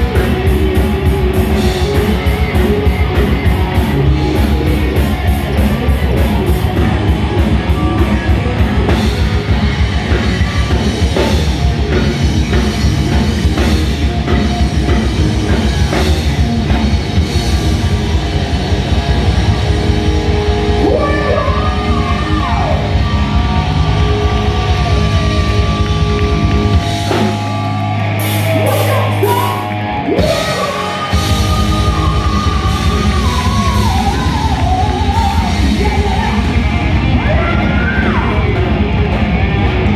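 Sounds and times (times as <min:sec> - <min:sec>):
heavy metal band playing live: 0:00.0 - 0:39.9
sung and yelled vocals: 0:20.6 - 0:25.8, 0:28.2 - 0:38.7.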